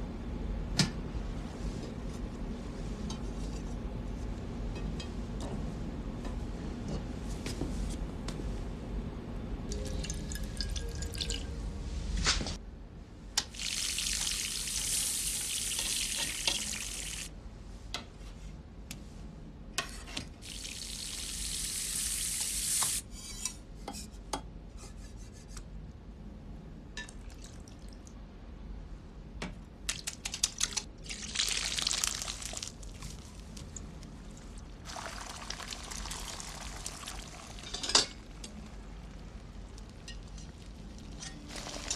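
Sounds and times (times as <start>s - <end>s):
cooking hiss: 13.5s - 17.3s, 20.4s - 23.0s.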